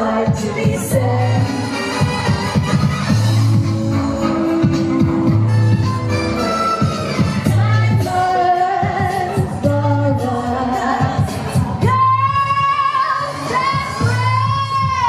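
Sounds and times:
women singing with band: 0.0s - 1.8s, 6.8s - 15.0s.

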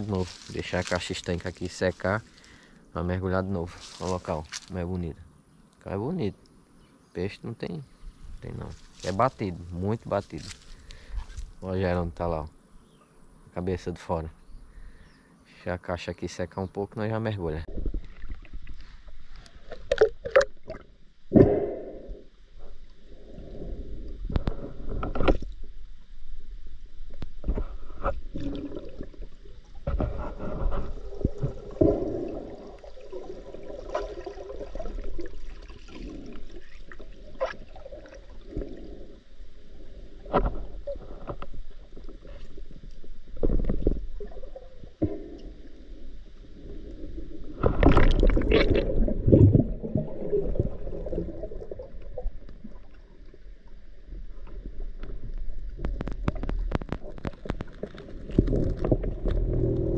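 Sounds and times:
underwater gurgling and swishing: 17.6s - 59.9s.

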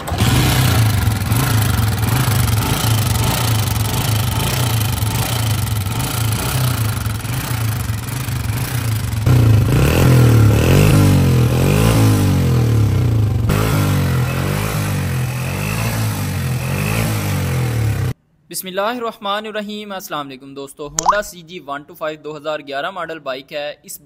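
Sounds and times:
motorcycle engine kick-started: 0.0s - 9.6s
motorcycle engine revving: 0.0s - 18.2s.

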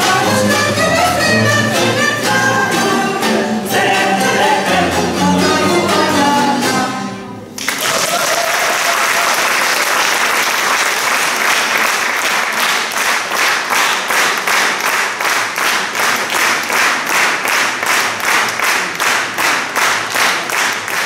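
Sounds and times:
rhythmic clapping in unison: 0.0s - 6.1s, 7.6s - 21.0s
audience applause: 7.6s - 21.0s.

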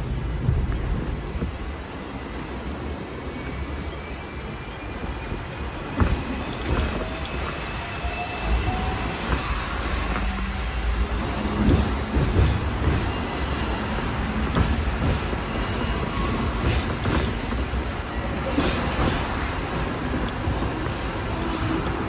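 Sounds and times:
tram rumbling: 0.0s - 22.0s.

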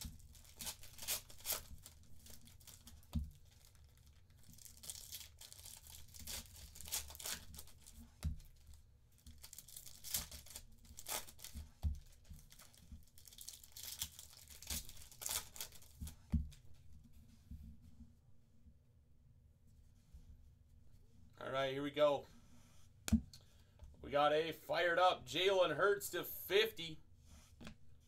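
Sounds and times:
foil packs tearing and crinkling: 0.0s - 7.9s, 9.3s - 11.6s, 12.4s - 16.0s.

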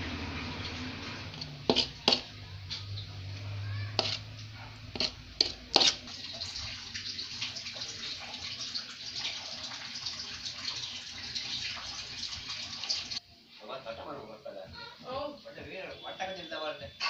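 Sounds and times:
water running: 4.0s - 13.2s.

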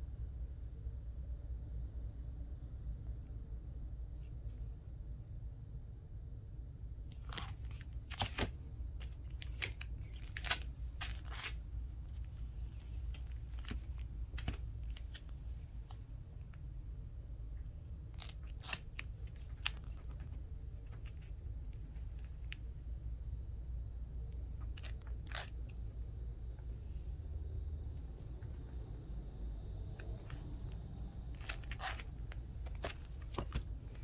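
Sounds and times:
low steady hum: 0.0s - 34.0s
plastic sleeves crinkling: 7.1s - 16.0s, 18.1s - 22.6s, 24.6s - 25.8s, 30.0s - 34.0s.

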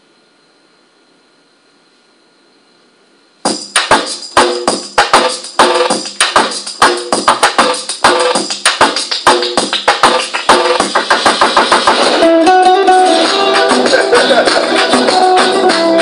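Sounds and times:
dance music with sharp percussion: 3.4s - 16.0s.

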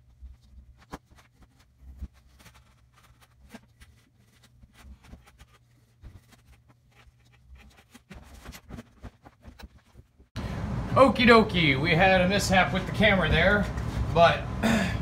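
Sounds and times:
tool scraping insulation board: 0.0s - 10.3s.

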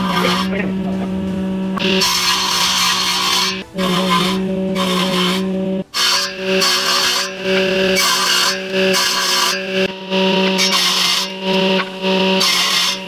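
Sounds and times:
cutter rasping through wood: 0.0s - 13.0s
woodworking machine motor humming: 0.0s - 13.0s.

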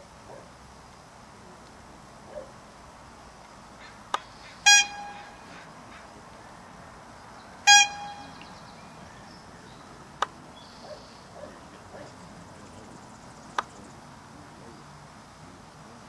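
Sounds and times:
horn toots: 4.6s - 5.6s, 7.6s - 8.6s.

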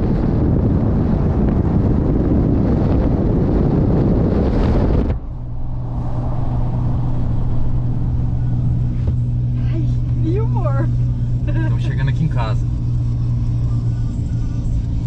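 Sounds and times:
wind buffeting microphone: 0.0s - 11.0s
truck low drone from inside cab: 0.0s - 15.0s
tyre and road noise: 0.0s - 15.0s.

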